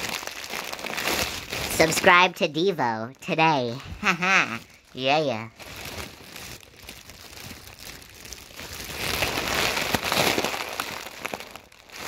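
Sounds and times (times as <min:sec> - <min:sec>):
close rustling and crinkling: 0:03.5 - 0:12.0.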